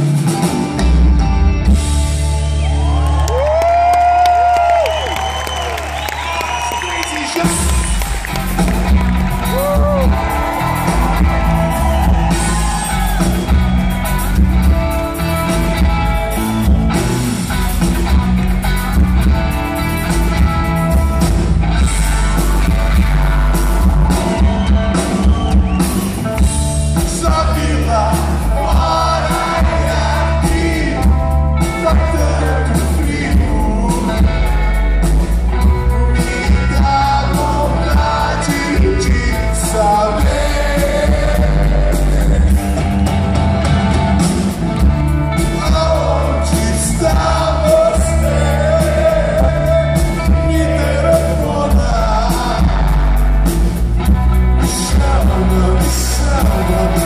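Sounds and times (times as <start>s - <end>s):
bass guitar: 0.0s - 57.0s
drums: 0.0s - 57.0s
electric guitar: 0.0s - 57.0s
man singing: 27.0s - 34.8s, 35.7s - 42.9s, 45.3s - 53.2s, 54.6s - 57.0s.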